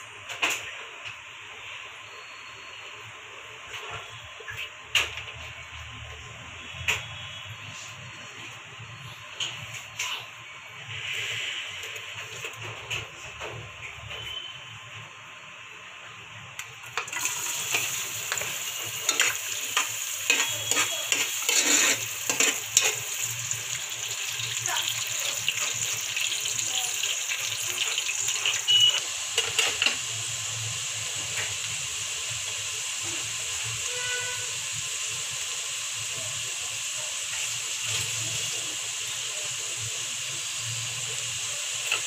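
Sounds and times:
onions sizzling in hot oil: 0:13.9 - 0:42.0
steel spoon scraping pan: 0:17.6 - 0:23.4.

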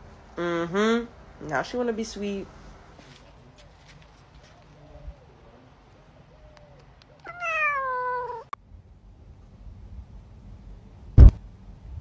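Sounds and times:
cat meowing: 0:07.2 - 0:08.6.

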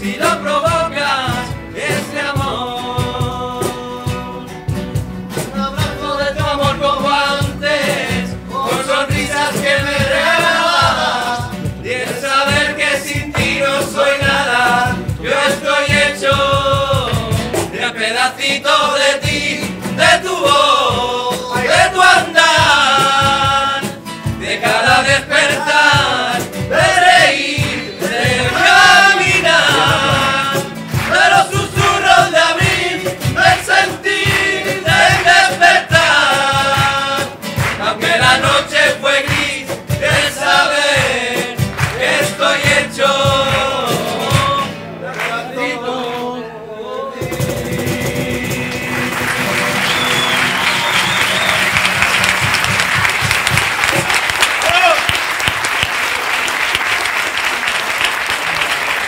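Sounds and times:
men singing together: 0:00.0 - 0:04.6, 0:05.3 - 0:51.5
cajon drumming: 0:00.0 - 0:45.4, 0:47.2 - 0:55.9
guitars: 0:00.0 - 0:46.6, 0:47.2 - 0:54.1
applause: 0:29.6 - 0:31.5, 0:37.5 - 0:38.0, 0:41.6 - 0:42.3, 0:45.1 - 0:45.4, 0:48.7 - 0:59.0.

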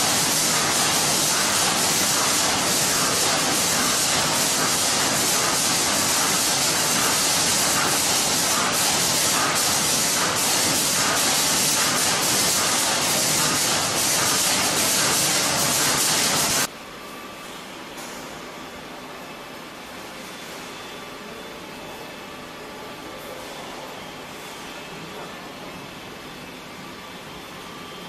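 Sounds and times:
machinery hissing: 0:00.0 - 0:16.7.

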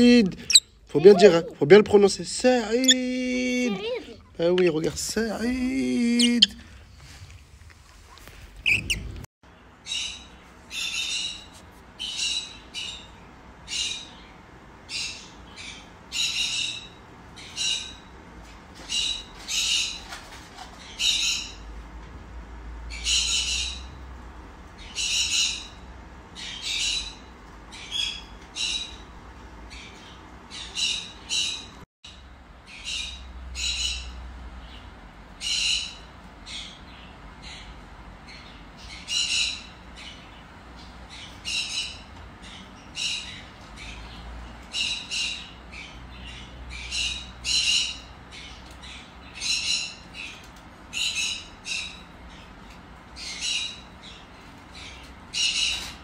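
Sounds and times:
parrot squawking: 0:06.1 - 0:06.6.

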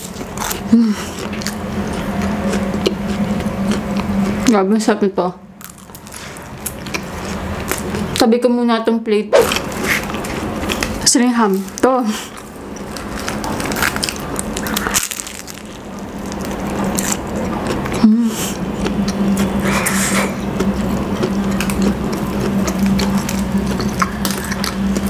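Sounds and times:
chewing: 0:00.0 - 0:04.6, 0:05.6 - 0:08.2, 0:09.4 - 0:25.0
bread crust crackling: 0:09.4 - 0:17.9.

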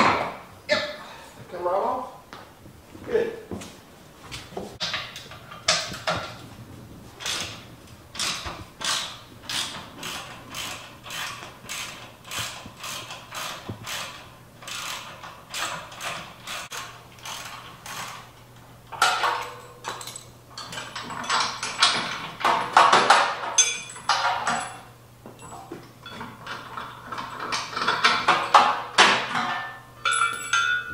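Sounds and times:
ratchet wrench clicking: 0:08.2 - 0:18.2
metal clanks and scrapes: 0:18.9 - 0:30.9.

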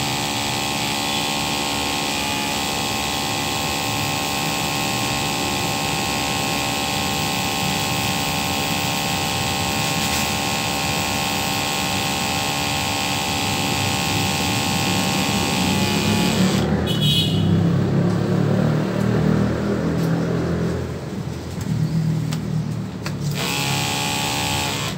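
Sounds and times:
electric pump whining: 0:00.0 - 0:16.8, 0:23.2 - 0:24.9.

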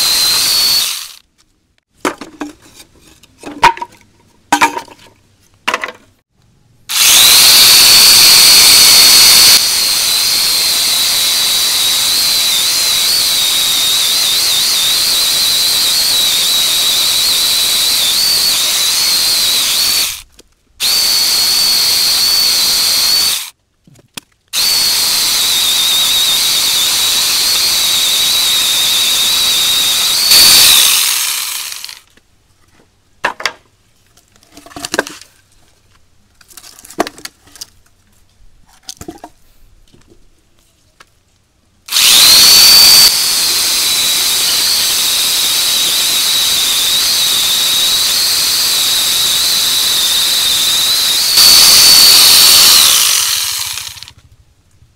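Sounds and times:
angle grinder high whine: 0:00.0 - 0:01.2, 0:06.9 - 0:20.2, 0:20.8 - 0:23.5, 0:24.6 - 0:32.0, 0:41.9 - 0:54.2.

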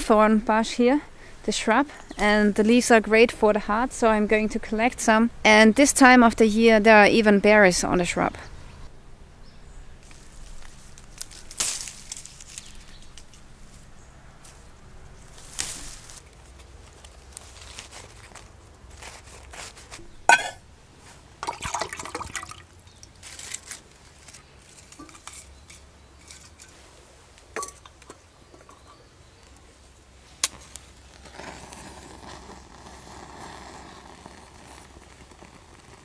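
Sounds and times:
cup rustling on wood shavings: 0:10.0 - 0:21.2, 0:23.0 - 0:27.9
metal cup clinking: 0:20.3 - 0:20.6, 0:27.6 - 0:29.0
kindling catching fire: 0:30.3 - 0:36.0.

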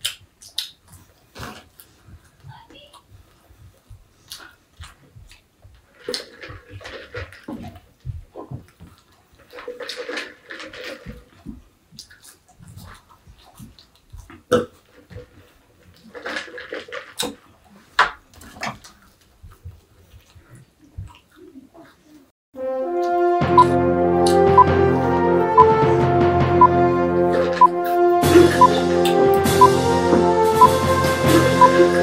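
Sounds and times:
boy chewing with full mouth: 0:00.0 - 0:22.3.

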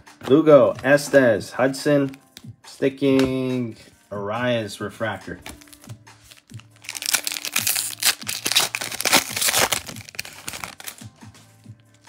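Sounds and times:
foil wrapper tearing and crinkling: 0:05.6 - 0:11.0.

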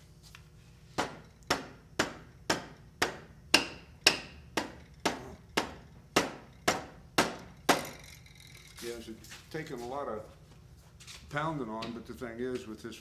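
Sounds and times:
mallet striking metal shaft: 0:01.0 - 0:08.2.

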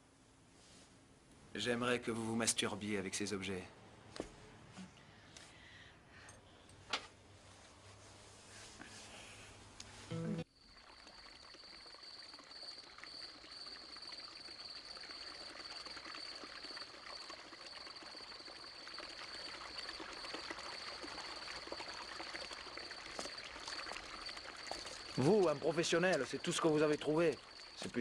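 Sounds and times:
water running and trickling: 0:10.4 - 0:28.0
high insect trill: 0:10.5 - 0:28.0.

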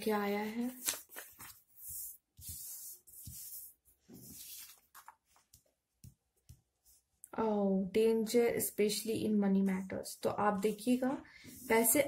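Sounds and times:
paper cards sliding on cloth: 0:00.8 - 0:05.1.

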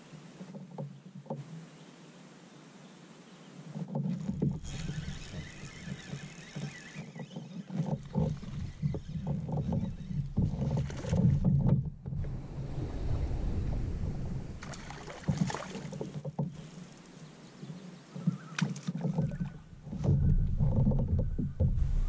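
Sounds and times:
fishing reel cranking: 0:04.4 - 0:10.4, 0:16.6 - 0:17.2
fish splashing: 0:04.6 - 0:11.4, 0:12.3 - 0:17.0.

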